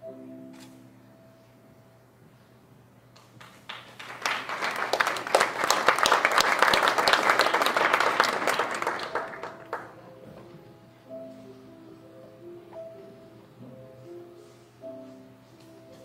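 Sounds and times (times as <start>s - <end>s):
audience applauding: 3.4s - 10.0s.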